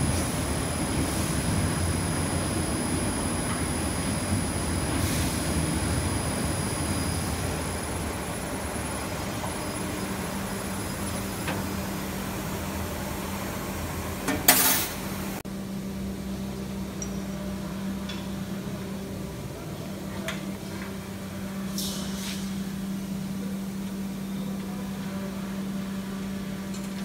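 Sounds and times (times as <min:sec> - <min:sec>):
workshop ambience: 0:00.0 - 0:27.0
short loud hiss: 0:14.5 - 0:15.1, 0:21.8 - 0:22.6.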